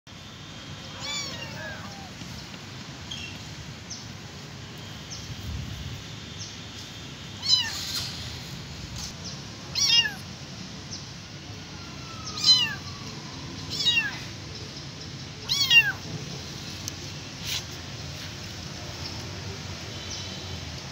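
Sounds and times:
kitten meowing loudly: 0.9 - 2.2, 9.7 - 10.2, 12.2 - 12.8, 13.7 - 14.3, 15.4 - 16.0.

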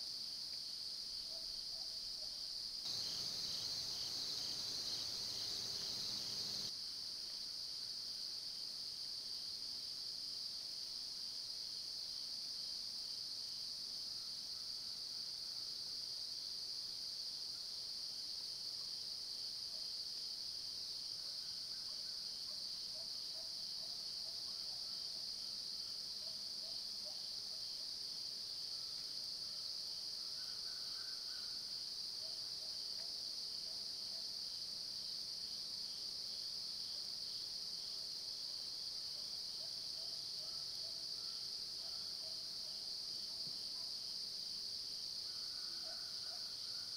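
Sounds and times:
insects droning: 2.9 - 6.7.

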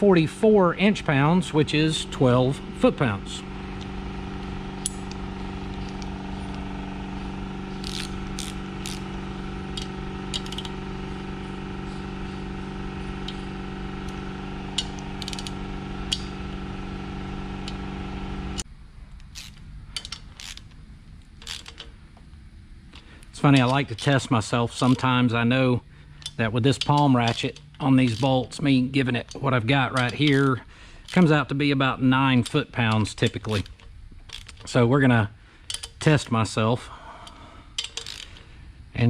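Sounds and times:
shop machine humming: 0.0 - 18.7, 22.6 - 39.0
torque wrench clicks: 7.7 - 10.8, 14.0 - 16.3, 19.2 - 20.8, 21.4 - 21.9, 26.1 - 31.4, 32.3 - 34.8, 35.6 - 36.3, 37.2 - 38.4.

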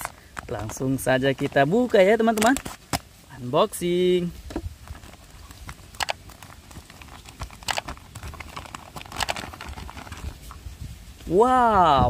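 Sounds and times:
plastic bag crinkling: 4.8 - 10.7.

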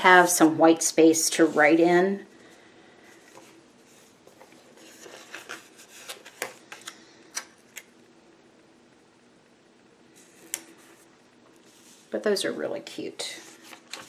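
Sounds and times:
paper rustling: 3.1 - 7.0, 13.4 - 14.0.

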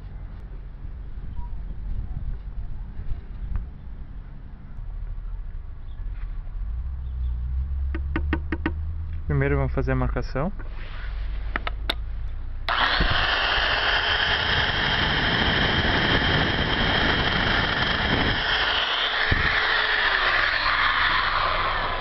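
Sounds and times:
electric drill boring metal: 12.7 - 22.0.

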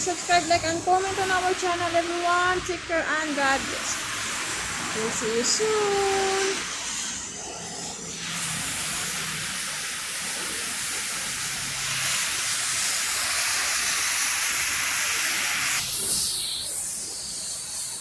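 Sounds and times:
rain on a wet street: 8.4 - 15.8.

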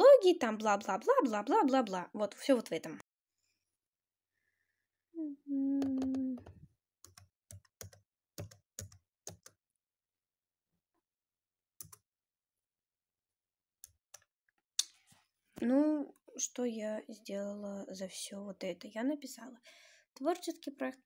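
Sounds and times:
person humming: 5.2 - 6.6.

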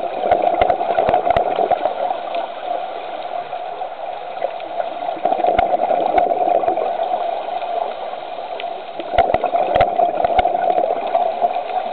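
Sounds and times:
muffled underwater rush with gurgling: 0.0 - 11.9.

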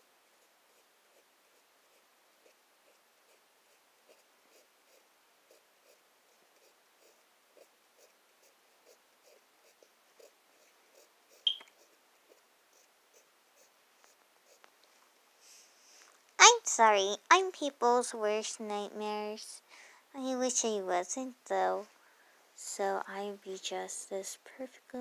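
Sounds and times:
pencil scratching on paper: 0.4 - 14.6
high-pitched squeak: 11.5 - 11.7.

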